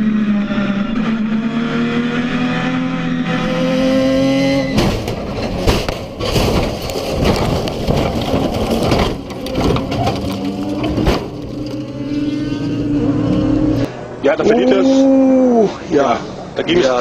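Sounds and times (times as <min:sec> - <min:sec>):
race car engine: 0:00.0 - 0:17.0
heavy impacts of car rolling: 0:04.5 - 0:12.2
bodywork crunching and scraping: 0:04.7 - 0:12.1.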